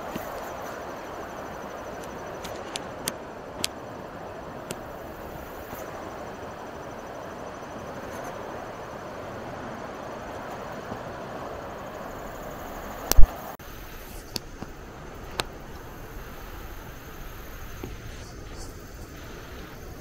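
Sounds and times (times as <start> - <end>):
sharp clicks: 13.1 - 13.4.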